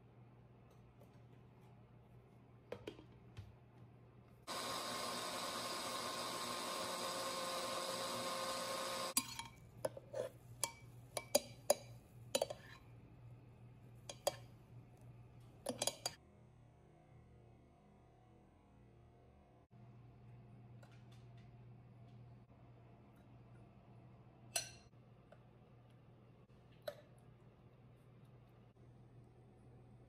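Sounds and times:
blender running: 4.5s - 9.2s.

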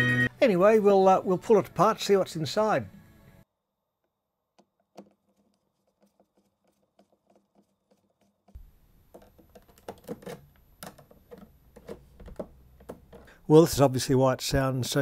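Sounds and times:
plastic case clicking and knocking: 9.0s - 13.3s.

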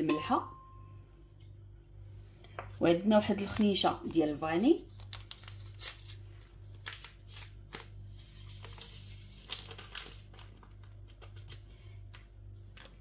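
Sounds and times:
steady low hum: 0.0s - 5.0s
paper sachet rustling and tearing: 4.7s - 11.9s.

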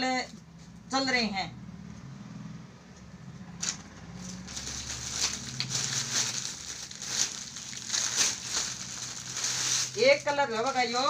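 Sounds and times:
plastic packaging crinkling: 3.6s - 11.0s.

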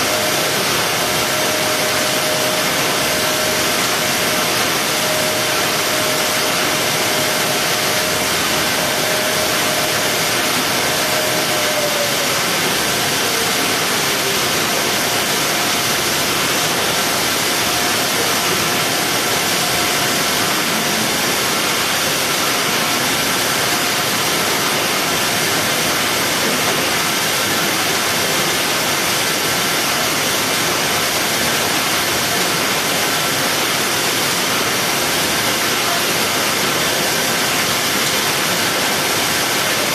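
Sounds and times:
faint motor whine: 0.0s - 23.9s
factory machinery hiss: 0.0s - 39.9s.

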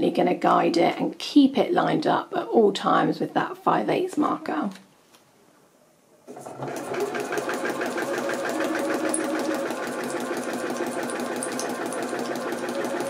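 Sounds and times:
sewing machine stitching: 6.3s - 13.0s.

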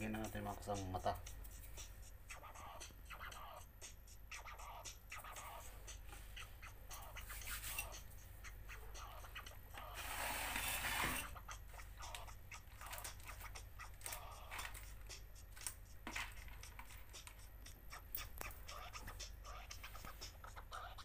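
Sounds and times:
steady low hum: 0.0s - 21.0s
small parts and tools clicking: 12.0s - 18.6s.

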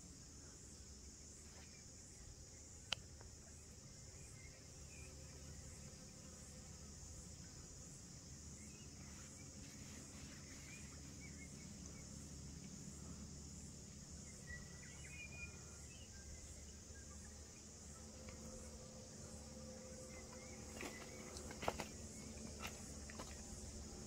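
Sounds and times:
high-pitched insect chorus: 0.0s - 24.0s
faint bird chirps: 8.6s - 22.8s.

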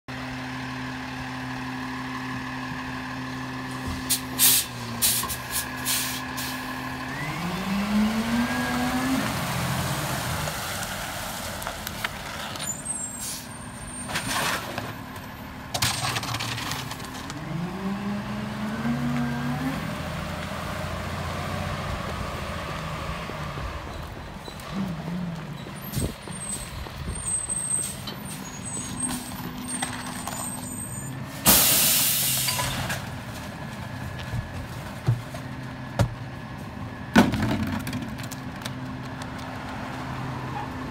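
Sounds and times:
garbage truck diesel engine: 0.1s - 40.9s
air brake hiss: 4.1s - 6.6s, 13.1s - 13.5s, 31.5s - 32.7s.

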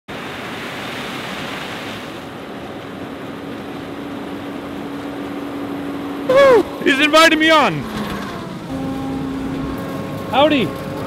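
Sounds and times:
combine harvester rushing noise: 2.2s - 11.0s.

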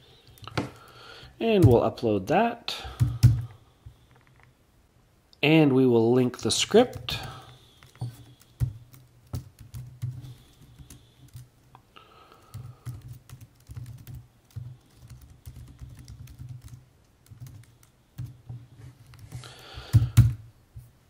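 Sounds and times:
computer keyboard typing: 2.9s - 3.5s, 6.8s - 11.5s, 12.4s - 18.4s.

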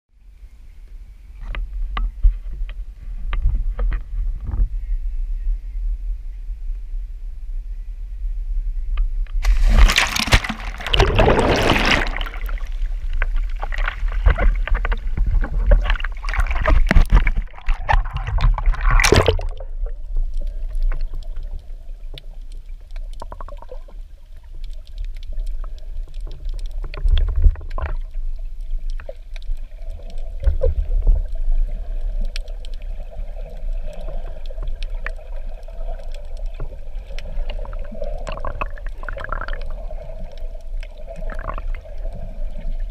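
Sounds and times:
underwater low rumble: 0.1s - 42.9s
underwater bubbles: 8.9s - 42.9s
water splashing and bubbling: 9.4s - 42.9s.

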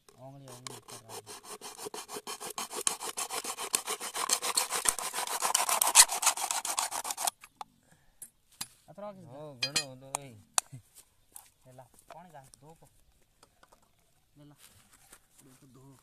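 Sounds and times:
machete blade scraping strokes: 0.4s - 7.3s.

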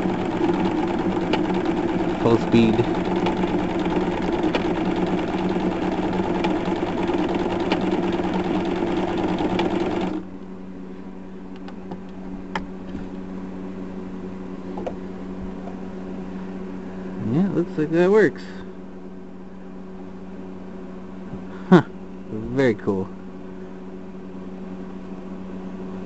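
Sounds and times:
sewing machine stitching: 0.0s - 10.2s
steady hum: 0.0s - 26.0s.

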